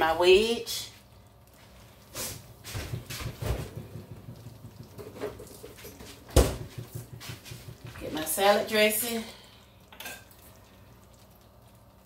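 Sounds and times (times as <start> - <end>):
soft kitchen knocks and shuffles: 2.2 - 8.4.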